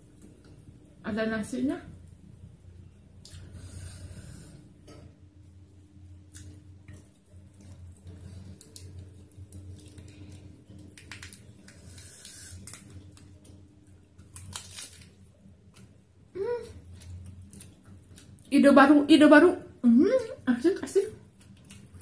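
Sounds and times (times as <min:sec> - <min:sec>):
steady low hum: 0:00.0 - 0:22.0
lettuce leaf crinkling: 0:08.3 - 0:13.3, 0:14.2 - 0:15.2.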